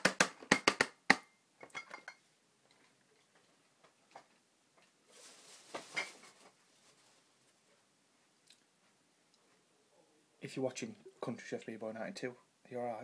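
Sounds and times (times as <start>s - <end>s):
rustling: 2.7s - 9.6s.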